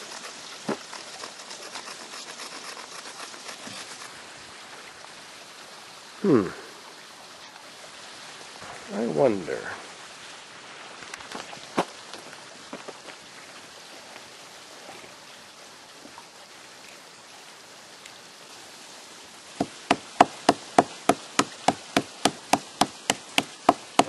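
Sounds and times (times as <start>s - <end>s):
tool striking rock: 0.0s - 4.1s, 19.6s - 24.0s
faint steady hiss: 0.0s - 24.0s.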